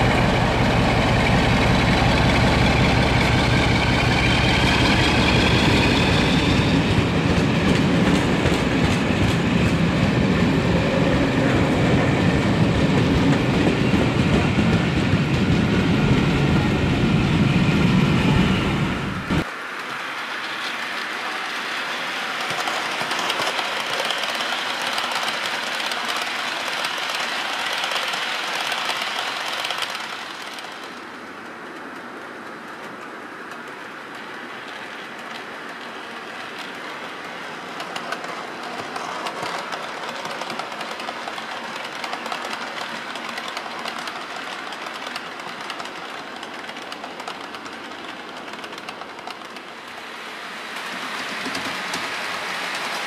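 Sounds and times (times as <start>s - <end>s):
model trains running on track: 0.0s - 53.0s.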